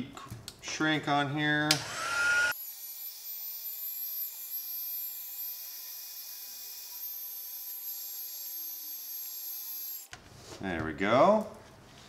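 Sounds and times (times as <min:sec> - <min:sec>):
heat gun blowing hot air: 0:01.7 - 0:02.6.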